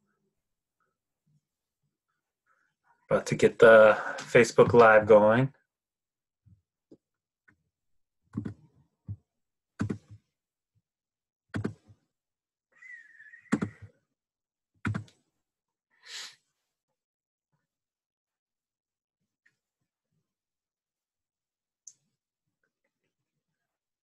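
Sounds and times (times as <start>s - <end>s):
breathy exhale: 16.0s - 16.4s.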